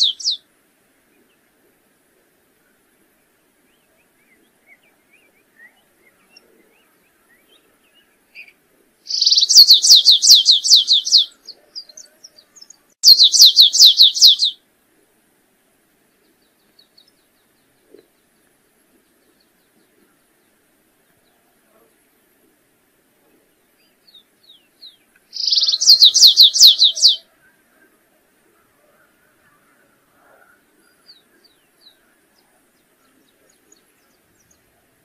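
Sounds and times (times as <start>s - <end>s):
faint bird chirps: 0.0s - 0.4s, 3.6s - 14.6s, 23.2s - 28.0s
finch singing falling notes: 25.3s - 27.2s.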